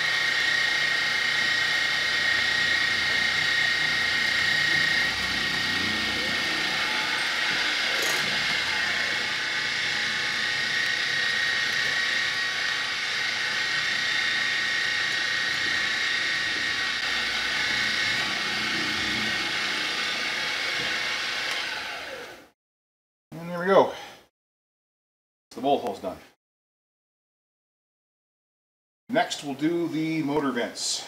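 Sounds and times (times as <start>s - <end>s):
milling machine drilling metal: 0.0s - 22.4s.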